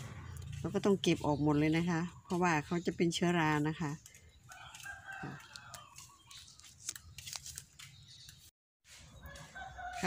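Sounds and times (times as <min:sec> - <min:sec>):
distant rooster crowing: 0:04.5 - 0:06.2, 0:09.2 - 0:10.0.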